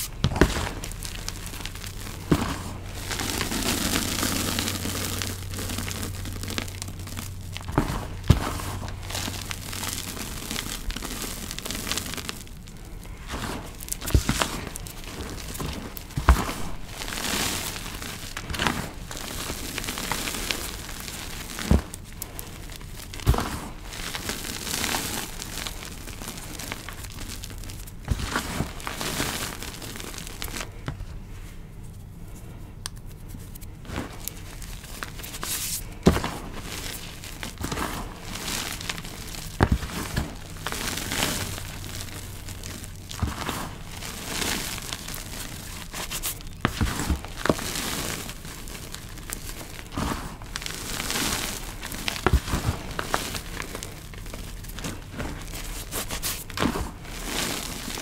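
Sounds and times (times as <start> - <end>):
hands crunching chalk powder: 0.0 - 58.0.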